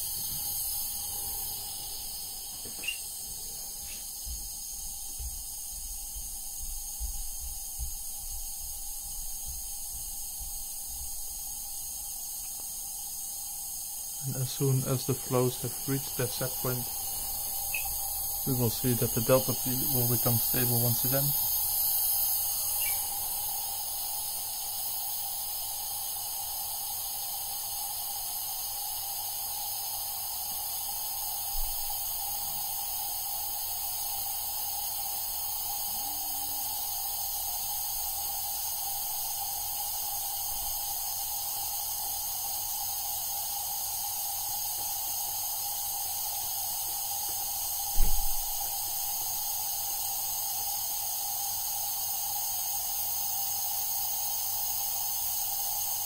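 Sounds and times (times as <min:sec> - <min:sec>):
compressed air hissing: 0:00.0 - 0:56.0
soft thump: 0:48.0 - 0:48.4.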